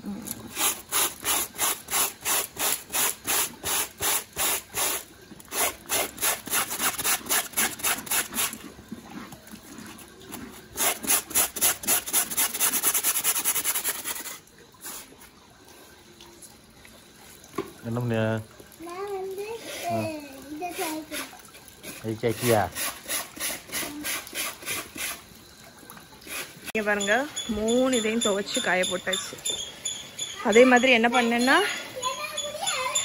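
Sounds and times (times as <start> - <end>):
scrub brush scrubbing wet fabric: 0.3 - 15.4, 19.2 - 25.4, 26.1 - 29.2.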